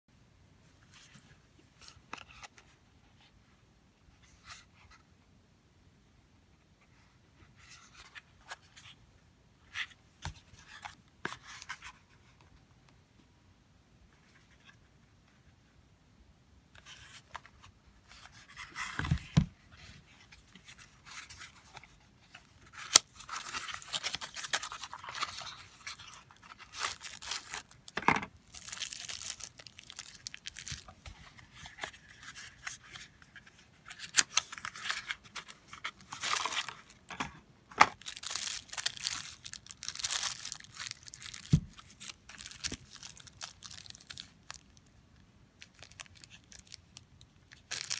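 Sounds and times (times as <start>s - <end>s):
paper boxes opened by hand: 16.8s - 44.3s
plastic bags crinkling: 23.2s - 30.9s, 37.9s - 44.7s, 45.6s - 46.8s, 47.5s - 47.9s.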